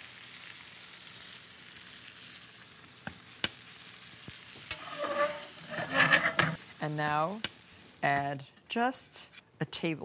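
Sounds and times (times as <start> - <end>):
fish sizzling in butter: 0.0 - 8.2.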